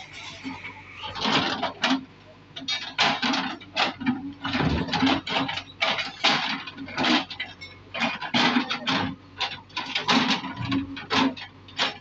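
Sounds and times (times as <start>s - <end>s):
diesel engine humming: 0.0s - 2.6s.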